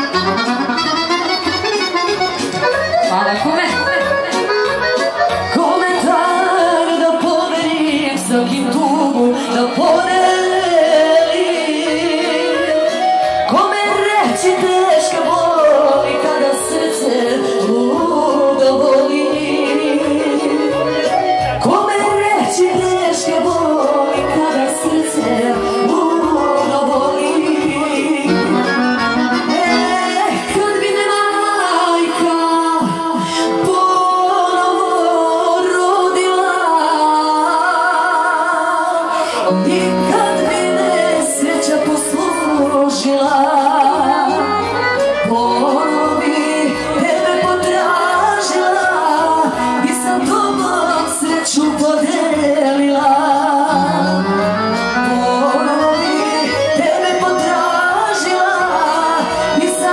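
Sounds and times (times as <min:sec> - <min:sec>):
live folk music with singing: 0:00.0 - 0:59.9
low bass line: 0:53.7 - 0:55.3.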